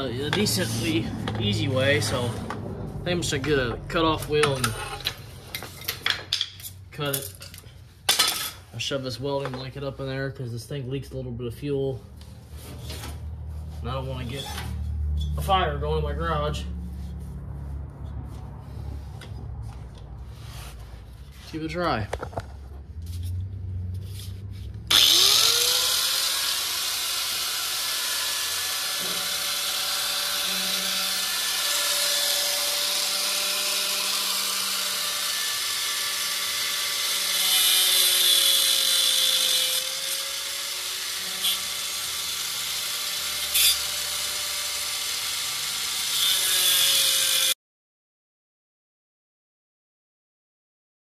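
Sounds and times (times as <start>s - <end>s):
angle grinder cutting metal: 0.0s - 2.6s, 3.3s - 5.2s, 24.9s - 47.6s.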